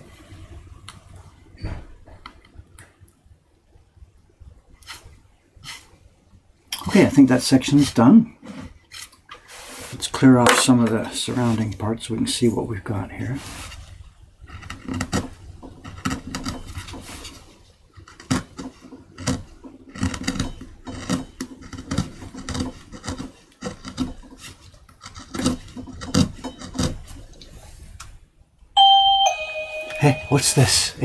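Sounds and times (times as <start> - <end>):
chisel scraping wood: 14.5 - 27.3.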